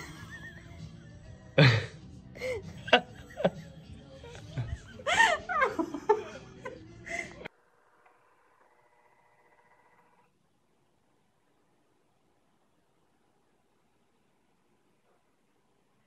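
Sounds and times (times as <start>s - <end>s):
person laughing: 0.0s - 7.5s.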